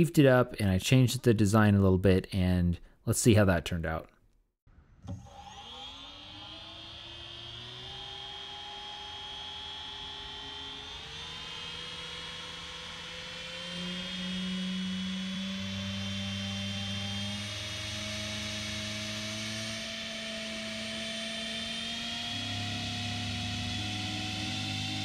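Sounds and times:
small motor spinning propeller: 5.1s - 25.0s.

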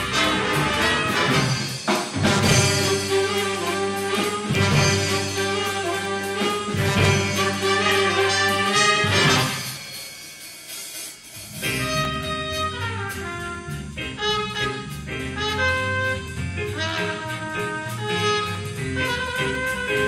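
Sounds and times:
instrumental background music: 0.0s - 20.0s.

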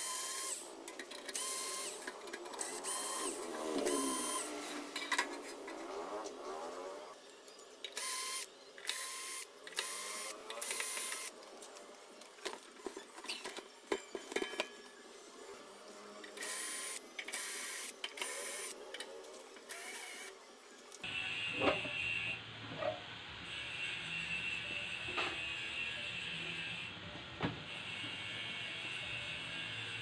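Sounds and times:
cordless drill whirring: 1.4s - 2.0s, 2.7s - 4.6s, 8.0s - 11.3s, 16.4s - 18.7s.

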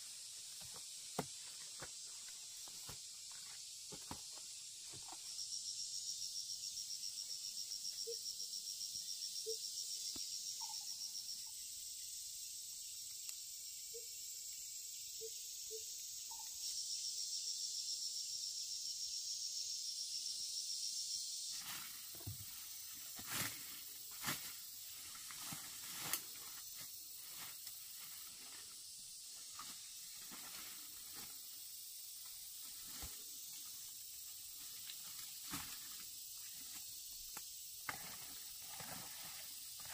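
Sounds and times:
constant high hiss: 0.0s - 39.9s
insects shrilling: 15.2s - 39.9s
leaves and stems rustling: 21.6s - 39.9s.

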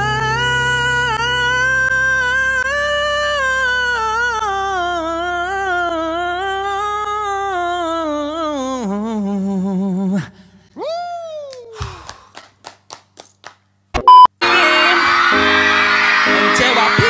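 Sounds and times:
man singing long high note: 0.0s - 10.9s, 14.4s - 15.3s.

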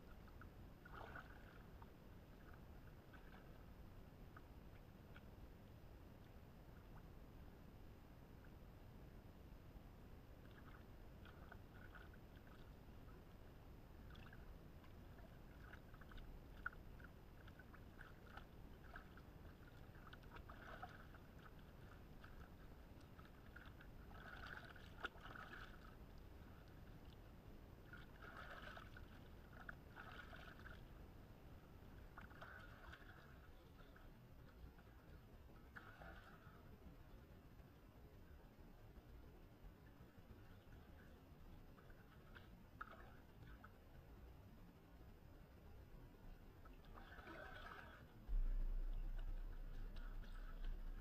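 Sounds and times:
water splashing around wading person: 0.0s - 3.8s, 10.4s - 13.2s, 14.0s - 27.2s, 27.8s - 31.0s, 32.0s - 35.0s, 46.6s - 51.0s.

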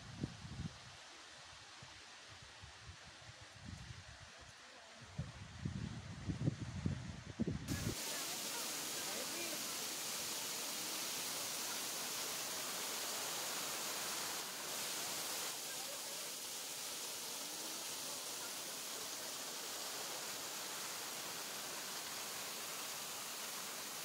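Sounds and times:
waterfall rushing: 7.7s - 24.0s.

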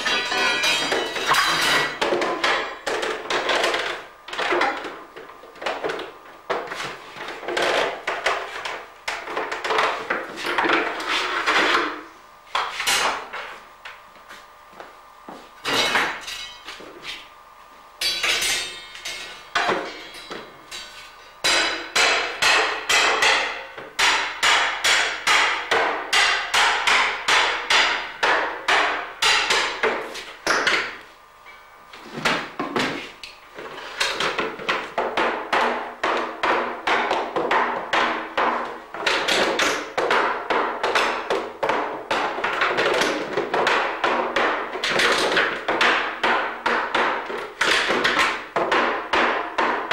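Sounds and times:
hammer striking metal hoops: 0.0s - 4.6s, 15.6s - 17.2s, 18.0s - 33.1s, 34.0s - 49.9s.

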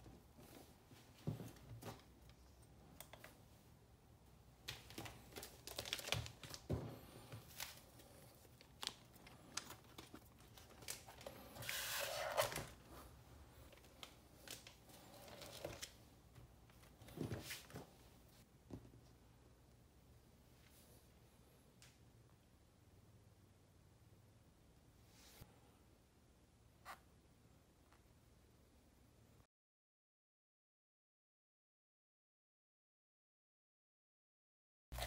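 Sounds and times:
circuit board tearing scrape: 11.6s - 12.5s.

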